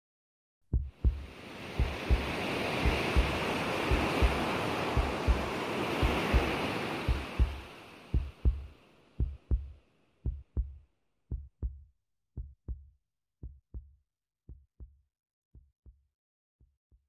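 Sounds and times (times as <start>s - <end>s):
heartbeat thumps: 0.7s - 15.0s, 15.6s - 16.0s
surf washing: 1.0s - 9.7s.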